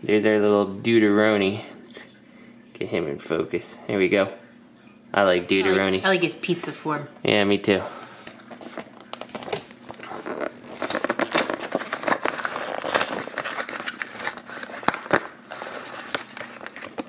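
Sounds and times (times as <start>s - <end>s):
plastic packaging crinkling: 8.3s - 17.0s
cardboard tearing: 8.6s - 17.0s.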